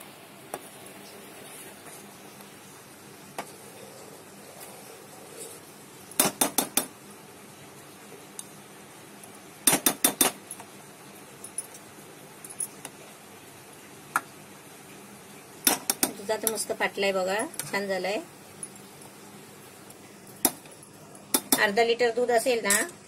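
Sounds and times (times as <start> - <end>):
spoon knocking against metal pot: 6.2 - 6.9.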